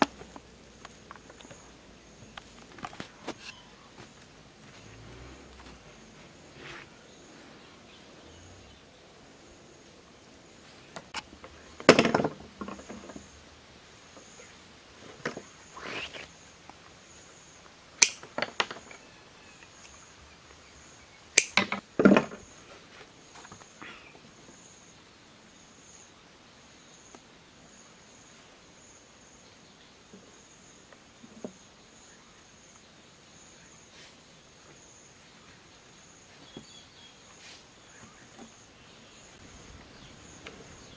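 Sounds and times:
faint insect chirping: 0.0s - 40.9s
bamboo sticks clattering: 2.3s - 3.6s, 10.9s - 13.3s, 18.0s - 19.0s, 21.4s - 22.4s.

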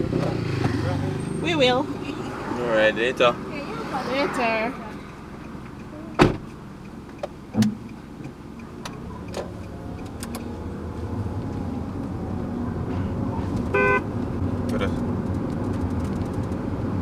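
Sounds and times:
car engine and road noise: 0.0s - 17.0s
recorded car horn honk: 13.7s - 14.1s.

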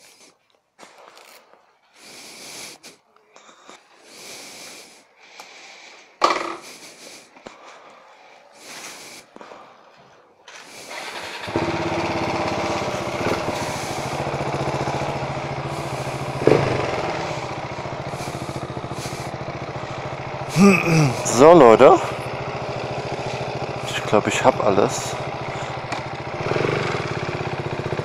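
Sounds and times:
motorcycle engine running: 10.8s - 28.0s.

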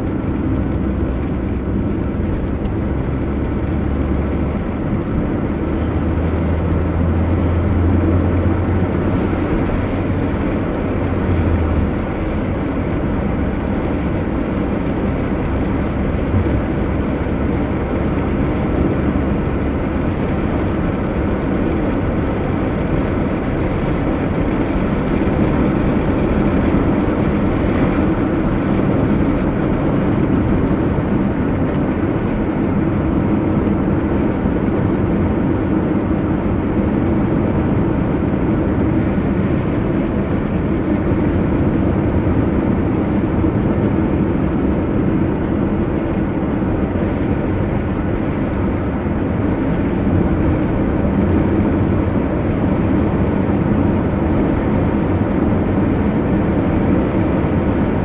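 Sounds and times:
car engine: 0.0s - 58.0s
tyre road noise: 0.0s - 58.0s.

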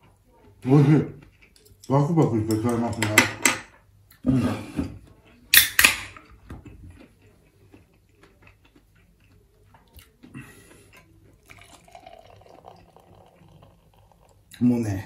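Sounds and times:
beer pouring into glass: 11.4s - 15.0s.

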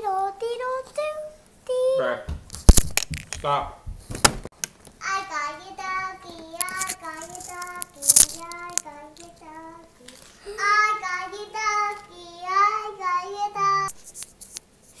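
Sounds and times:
child singing in a high voice: 0.0s - 2.0s, 5.0s - 14.0s.

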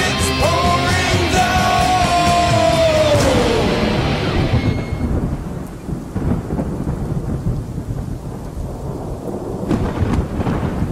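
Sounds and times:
steady rain: 0.0s - 10.9s
rolling thunder: 3.0s - 10.9s
sharp thunder crack: 3.2s - 10.9s.

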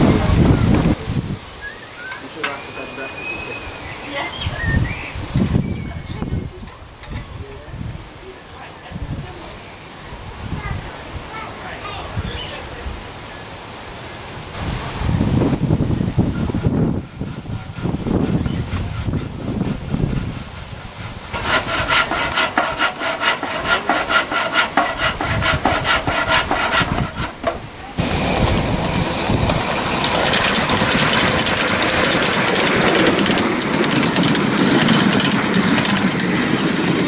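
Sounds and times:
model locomotive running: 14.6s - 37.0s
handsaw cutting wood: 16.5s - 35.2s.

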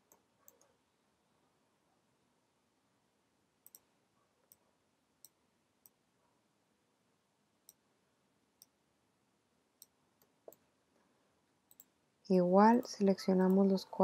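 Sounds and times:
computer mouse and keyboard clicks: 3.6s - 3.9s.

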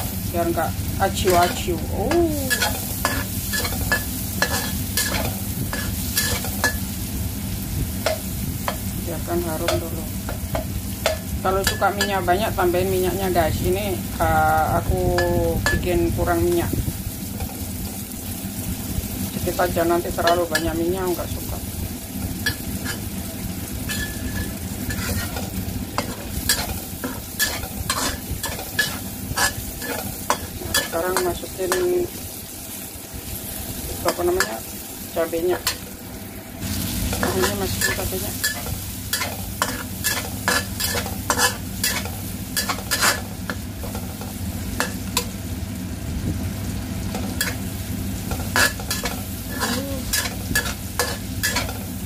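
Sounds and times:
food sizzling in oil: 0.0s - 52.0s
metal spatula scraping pan: 2.5s - 6.8s, 23.8s - 31.0s, 37.2s - 45.3s, 48.3s - 51.8s.

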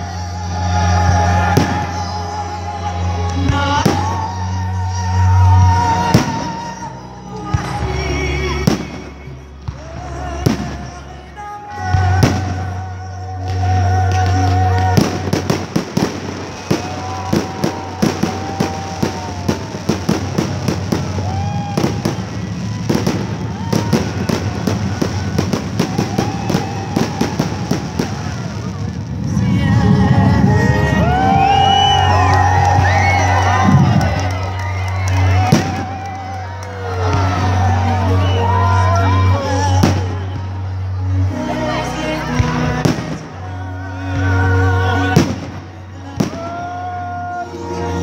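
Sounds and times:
christmas song playing: 0.0s - 48.0s
fireworks bangs: 1.0s - 2.2s, 11.9s - 12.8s, 13.4s - 40.8s, 45.0s - 48.0s.

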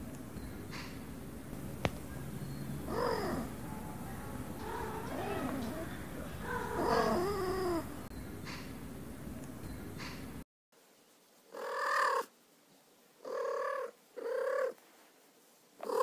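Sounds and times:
cat trilling: 2.8s - 8.0s, 11.5s - 12.3s, 13.2s - 14.8s, 15.8s - 16.0s.

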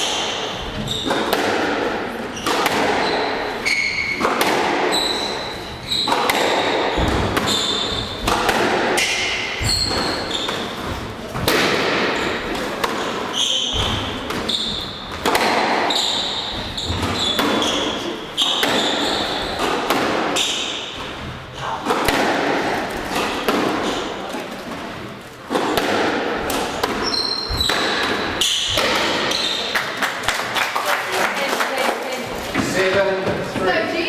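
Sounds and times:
shoes squeaking on wooden floor: 0.0s - 1.3s, 2.3s - 8.4s, 9.2s - 11.4s, 12.0s - 21.8s, 22.8s - 25.8s, 26.4s - 30.0s
squash ball cracking off rackets: 1.0s - 20.8s, 21.8s - 30.3s
ball thudding against walls: 5.9s - 24.8s, 25.5s - 29.6s.

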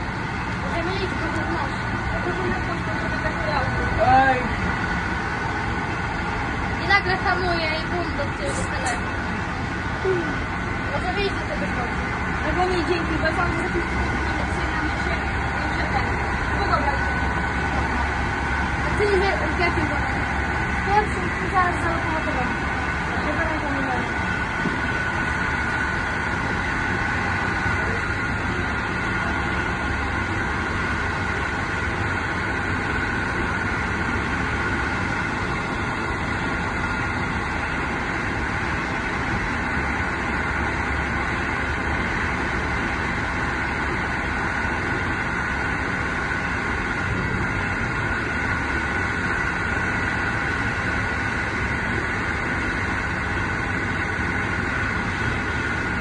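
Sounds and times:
high whine: 0.0s - 56.0s
train wheels rumbling: 0.0s - 56.0s.

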